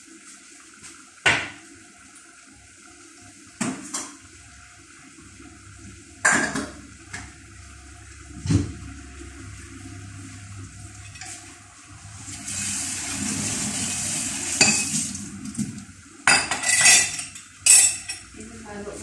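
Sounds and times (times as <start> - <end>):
dishes clattering in sink: 3.6 - 4.2, 6.2 - 7.3, 14.5 - 18.3.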